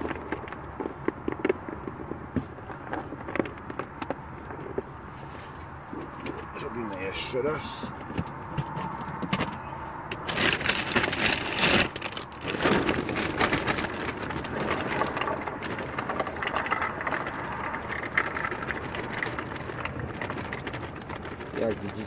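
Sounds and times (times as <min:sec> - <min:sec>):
plastic bag rustling: 0:08.7 - 0:22.0
baits pattering into a container: 0:10.2 - 0:22.0.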